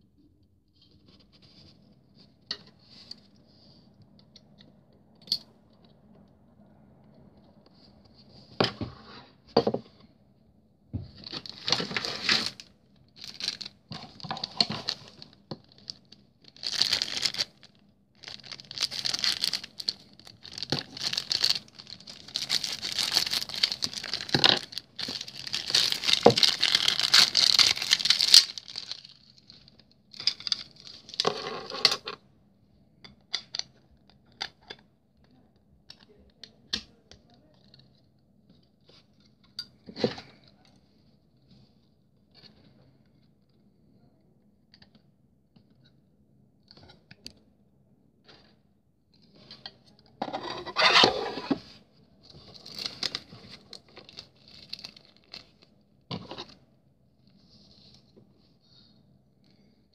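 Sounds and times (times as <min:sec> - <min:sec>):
plastic film rustling and crinkling: 0:11.2 - 0:32.1, 0:52.3 - 0:55.7.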